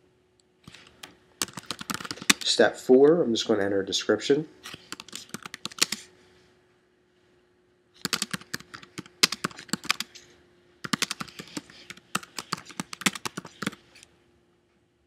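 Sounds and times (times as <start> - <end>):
typing on computer keyboard: 0.8 - 2.5, 4.7 - 6.1, 8.0 - 10.2, 10.8 - 14.0.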